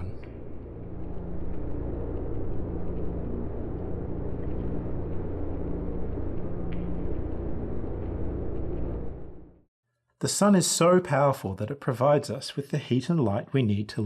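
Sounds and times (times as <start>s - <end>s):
dense noise bed: 0.0s - 9.7s
synthesized low drone: 0.0s - 9.7s.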